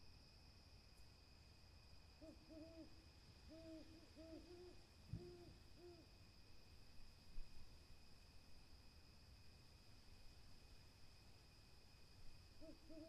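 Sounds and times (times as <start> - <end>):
owl hooting: 2.2 - 2.9, 3.5 - 6.1, 12.6 - 13.0.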